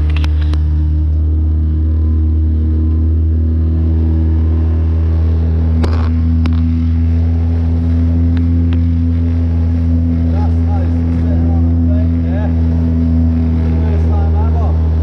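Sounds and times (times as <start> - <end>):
boat through choppy water: 0.0 - 15.0
small outboard motor running: 0.0 - 15.0.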